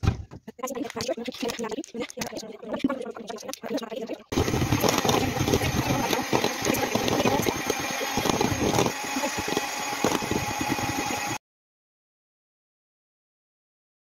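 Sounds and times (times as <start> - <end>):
electric hand mixer running: 4.3 - 11.4.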